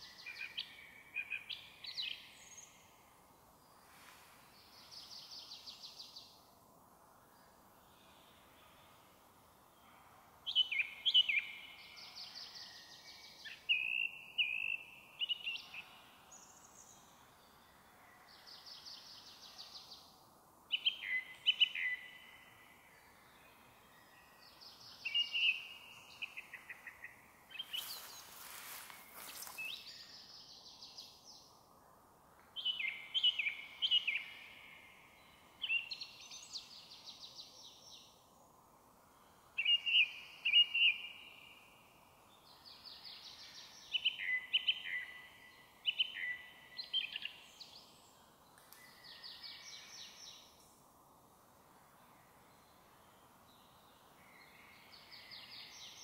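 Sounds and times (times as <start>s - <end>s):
small birds singing: 0.0s - 6.5s, 7.4s - 31.8s, 32.4s - 51.0s, 51.8s - 56.0s
song thrush singing: 10.5s - 17.6s, 18.4s - 31.6s, 32.4s - 38.3s, 39.2s - 50.8s.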